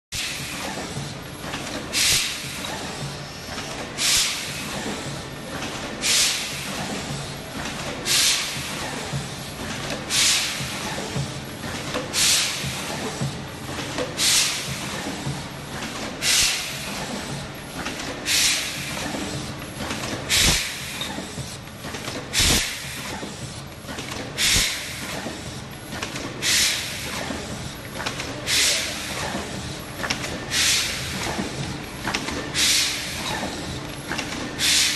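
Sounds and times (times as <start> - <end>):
steady mechanical hum: 0.2 - 34.9
pneumatic valve air hiss: 1.9 - 3.0, 4.0 - 5.1, 6.0 - 6.8, 8.1 - 9.0, 10.1 - 10.6, 12.2 - 12.6, 14.2 - 14.7, 16.2 - 17.0, 18.3 - 19.0, 20.3 - 21.2, 22.4 - 23.2, 24.4 - 25.3, 26.4 - 27.3, 28.5 - 29.0, 30.5 - 31.1, 32.6 - 33.6, 34.6 - 34.9.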